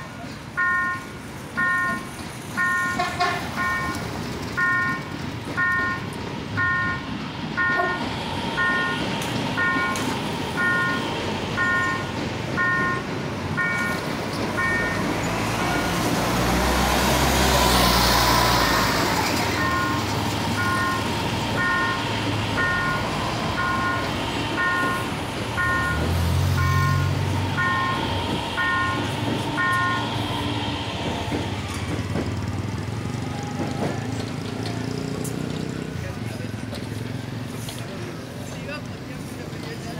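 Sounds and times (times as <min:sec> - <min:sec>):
train passing: 0:00.0 - 0:39.9
level-crossing bell ringing: 0:09.6 - 0:15.8, 0:18.6 - 0:30.2.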